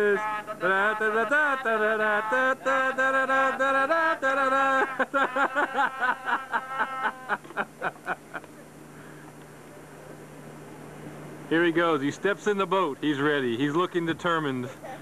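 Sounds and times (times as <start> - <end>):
person singing wordless tune: 0.0 - 6.6.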